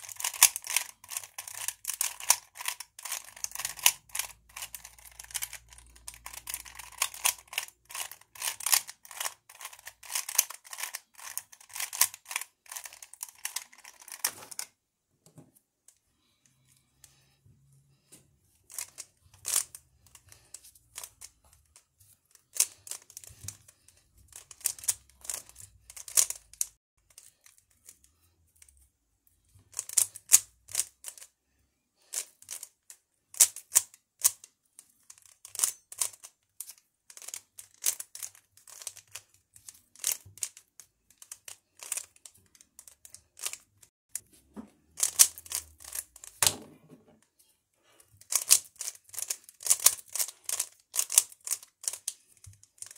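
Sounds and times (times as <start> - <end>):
puzzle cube layers clicking: 0.0 - 14.7, 24.3 - 26.7, 35.1 - 43.6, 45.0 - 46.4, 48.2 - 52.9.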